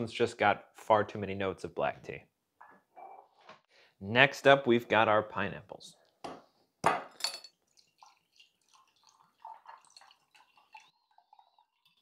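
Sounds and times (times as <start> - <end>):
liquid trickling into glass: 7.5 - 12.0.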